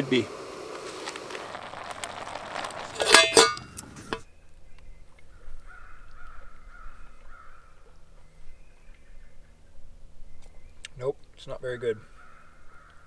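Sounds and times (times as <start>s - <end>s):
gas stove burner hissing: 0.0s - 1.5s.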